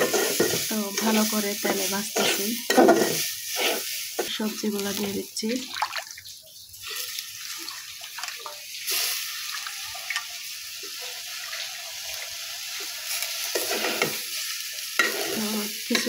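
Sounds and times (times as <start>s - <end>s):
food sizzling in hot oil: 0.0s - 16.0s.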